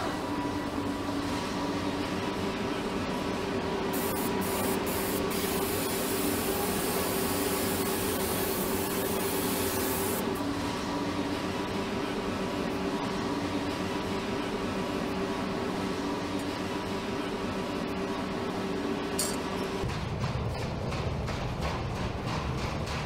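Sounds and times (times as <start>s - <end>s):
production-line machinery hum: 0.0s - 23.0s
hiss of escaping air: 4.0s - 10.2s.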